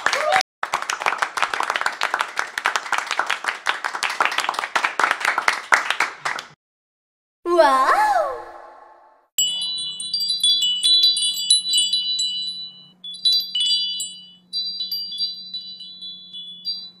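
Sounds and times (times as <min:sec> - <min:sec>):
bright high chimes tinkling: 0:09.4 - 0:17.0.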